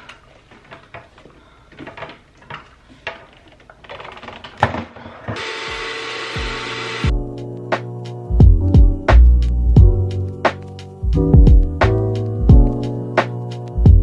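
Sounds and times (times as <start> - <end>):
spot cleaner motor whining: 5.4 - 7.1
background music: 5.7 - 14.0.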